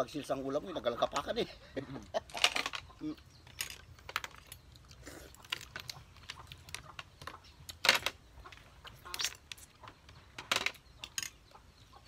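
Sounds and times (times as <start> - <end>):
clinks of snail shells: 2.3 - 9.7.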